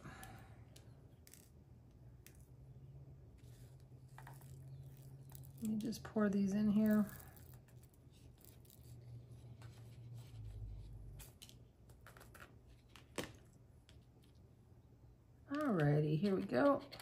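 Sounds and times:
tiny resin beads pouring: 4.2 - 6.0, 6.6 - 7.8.

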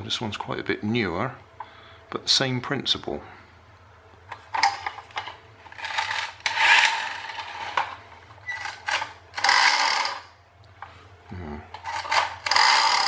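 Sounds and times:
clockwork toy motors whirring: 5.8 - 7.8, 8.6 - 10.3, 11.9 - 13.0.

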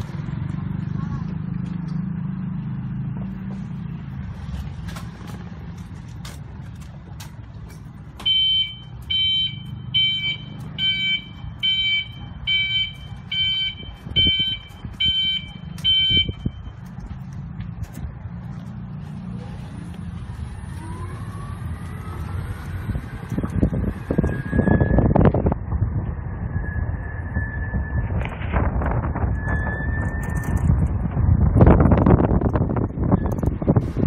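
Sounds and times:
electric shuttle motor and road noise: 0.0 - 34.0
high electronic warning beeps: 8.3 - 16.9.

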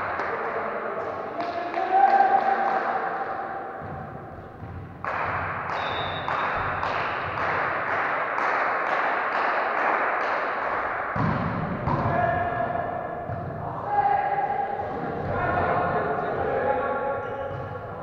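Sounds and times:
voices: 0.0 - 3.9, 11.9 - 18.0
rhythmic clapping echoing: 0.0 - 18.0.

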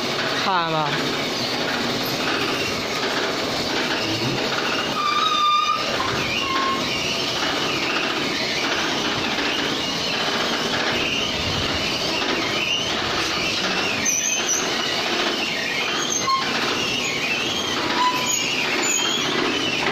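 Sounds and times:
wall-rendering machine running: 0.0 - 19.9
wavering high squeal: 4.0 - 19.9.

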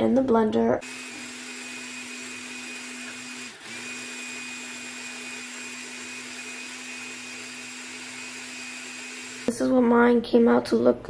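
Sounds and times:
blender motor grinding: 0.8 - 9.5.

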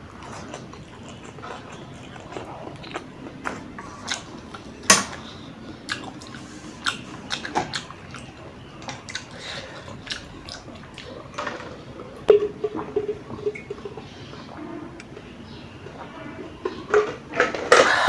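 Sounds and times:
gulping a drink: 0.0 - 14.1
chewing noodles: 0.0 - 18.0.

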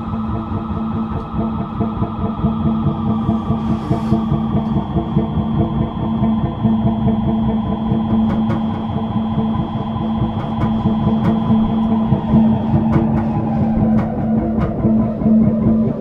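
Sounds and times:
buzzing drone with fast pulse: 0.0 - 16.0.

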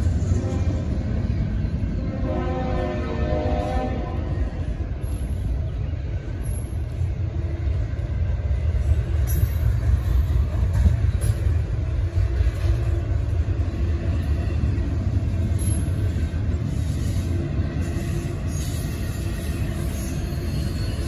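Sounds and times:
freight train rumbling past: 0.0 - 21.0.

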